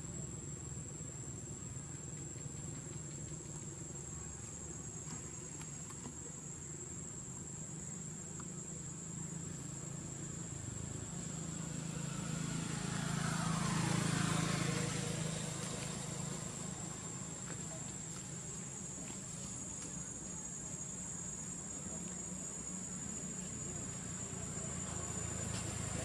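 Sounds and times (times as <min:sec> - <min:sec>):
passing vehicle engine hum: 0:09.0 - 0:20.6, 0:21.9 - 0:26.0.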